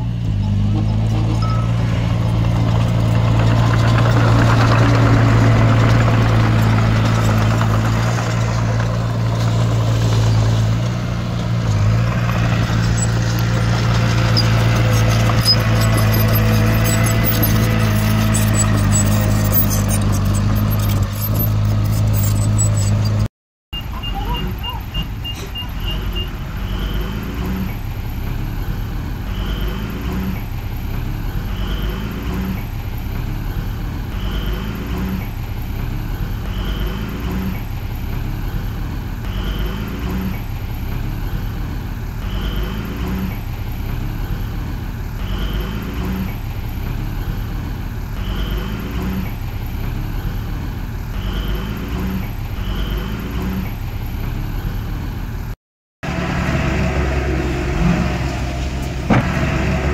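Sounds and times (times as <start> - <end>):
diesel engine running: 0.0 - 59.9
high beeps: 1.4 - 2.2.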